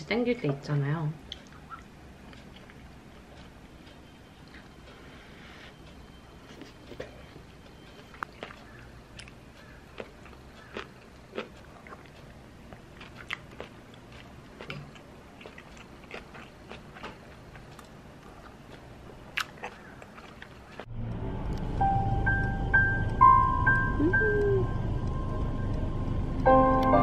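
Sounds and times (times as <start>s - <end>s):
person chewing: 1.3s - 5.0s, 5.7s - 20.9s
music: 21.8s - 25.8s, 26.4s - 27.0s.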